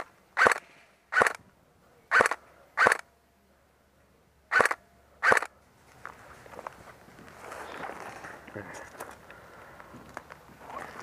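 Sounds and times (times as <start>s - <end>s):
airsoft rifle shots: 0.0s - 1.4s, 2.1s - 3.0s, 4.5s - 5.5s.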